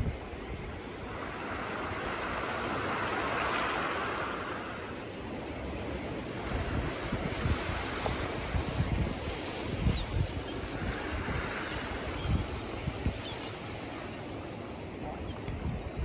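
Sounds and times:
wind buffeting microphone: 0:00.0 - 0:02.4, 0:05.7 - 0:13.4
small waves on pebble shore: 0:00.7 - 0:15.0.

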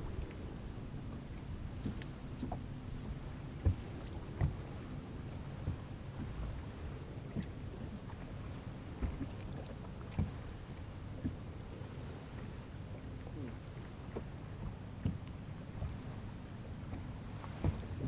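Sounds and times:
water and wind around hull: 0:00.0 - 0:18.0
dull knocks on boat hull: 0:17.6 - 0:17.9.

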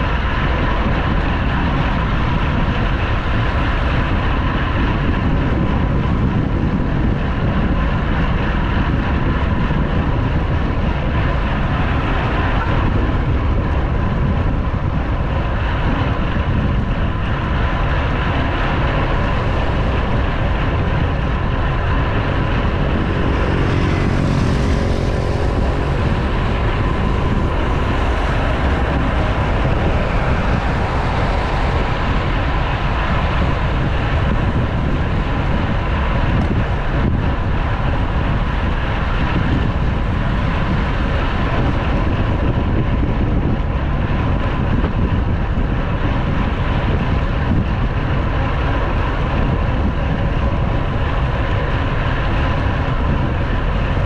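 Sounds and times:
wind rush on microphone: 0:00.0 - 0:54.0.

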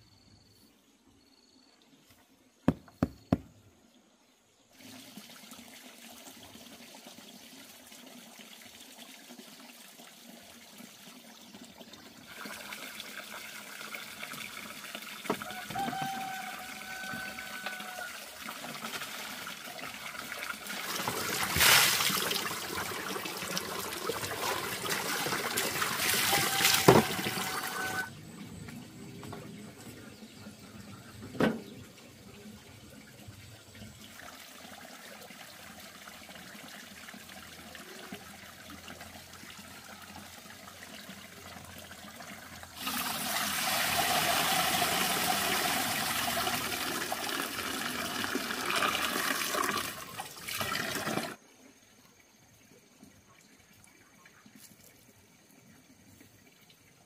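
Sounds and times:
water splashing into plastic basins: 0:04.8 - 0:30.5, 0:40.4 - 0:51.4.

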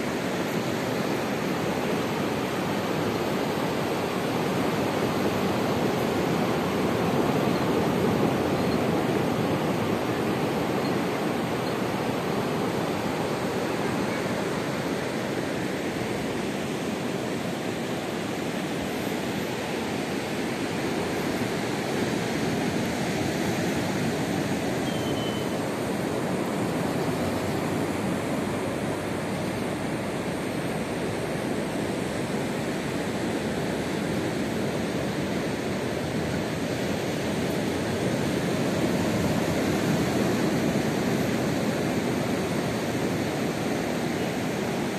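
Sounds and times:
ocean surf on sandy beach: 0:00.0 - 0:44.9.

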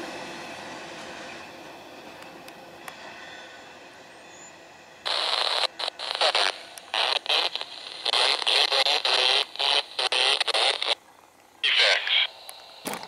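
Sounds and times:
garbled voice over radio: 0:05.1 - 0:11.0, 0:11.6 - 0:12.4
crackly radio transmission: 0:05.1 - 0:13.0.

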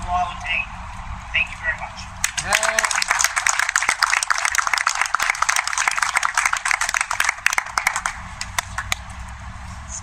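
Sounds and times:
crowd applauding: 0:02.2 - 0:09.0.

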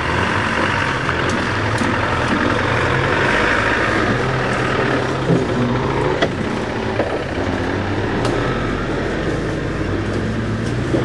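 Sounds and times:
sharp knocks: 0:00.0 - 0:08.4
off-road vehicle engine driving past: 0:00.0 - 0:11.0.

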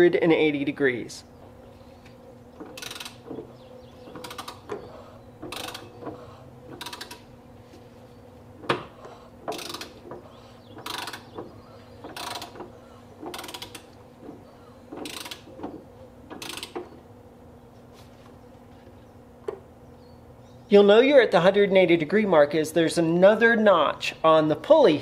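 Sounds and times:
ratchet wrench clicking: 0:02.7 - 0:03.4, 0:04.1 - 0:04.8, 0:05.4 - 0:07.3, 0:09.5 - 0:10.2, 0:10.8 - 0:11.4, 0:12.1 - 0:14.0, 0:15.0 - 0:15.5, 0:16.3 - 0:16.9.

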